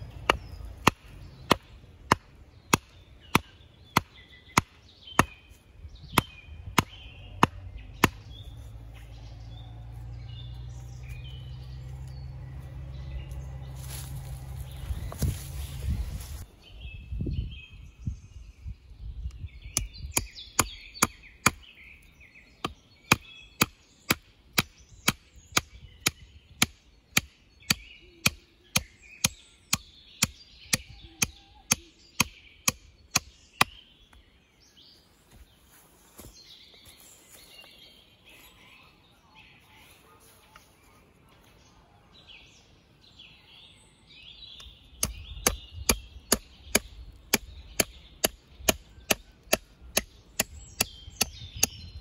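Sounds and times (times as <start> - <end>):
birds chirping: 0.0 - 52.0
axe chopping wood: 0.1 - 5.4, 6.1 - 8.4, 19.8 - 21.7, 22.6 - 33.8, 45.0 - 51.8.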